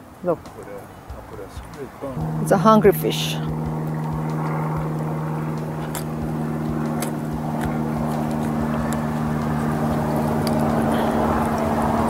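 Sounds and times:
motor humming: 0:02.2 - 0:12.0.

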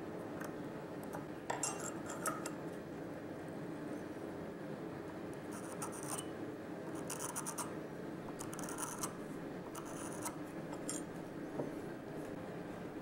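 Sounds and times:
scriber scratching on steel: 0:05.5 - 0:06.3, 0:07.0 - 0:07.7, 0:08.4 - 0:11.1.

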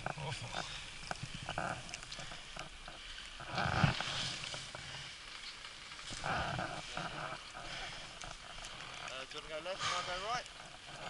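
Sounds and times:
skis running through powder snow: 0:03.5 - 0:07.6.

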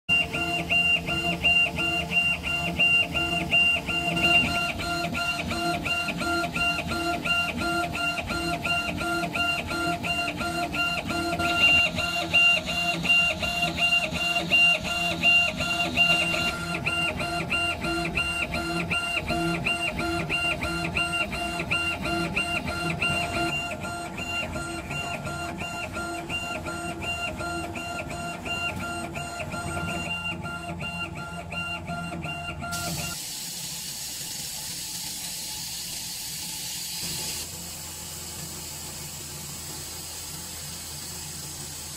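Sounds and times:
laser head drive whining: 0:00.1 - 0:41.9.

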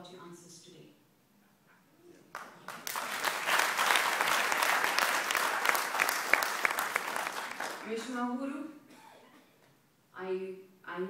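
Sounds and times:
audience applauding: 0:02.3 - 0:08.1.

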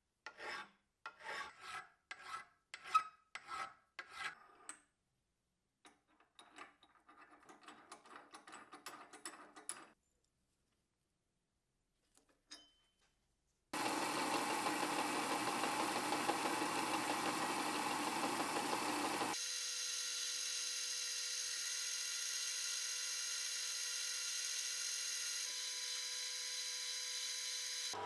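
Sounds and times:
metal lathe whining: 0:13.8 - 0:19.4.

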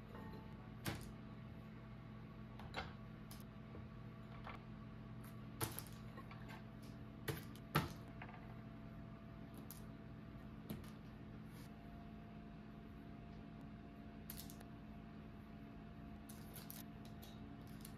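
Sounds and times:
faint steady hum: 0:00.0 - 0:17.9.

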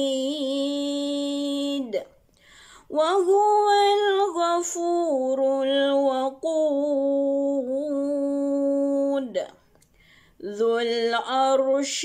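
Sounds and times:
woman chanting recitation: 0:02.9 - 0:09.6, 0:10.4 - 0:12.0.

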